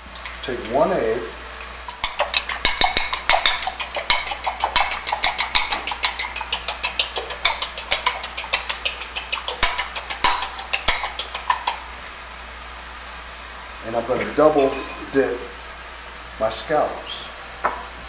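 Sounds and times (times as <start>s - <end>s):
utensil clicking against ceramic bowl: 1.9s - 11.8s.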